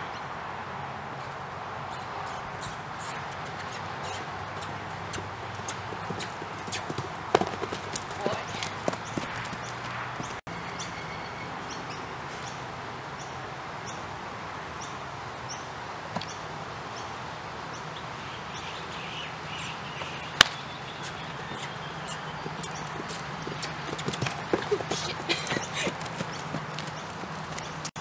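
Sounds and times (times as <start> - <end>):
small birds chirping: 1.2 - 14.0, 14.8 - 28.0.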